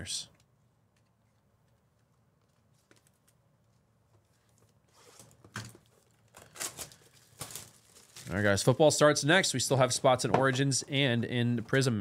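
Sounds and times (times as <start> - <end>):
wrapper rustling: 2.5 - 8.9.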